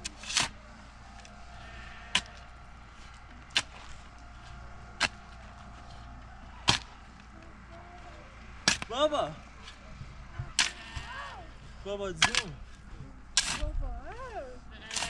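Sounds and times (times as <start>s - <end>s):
hand tool striking: 2.1s - 2.5s, 6.6s - 7.2s, 8.6s - 9.0s, 12.2s - 12.6s, 13.3s - 13.7s.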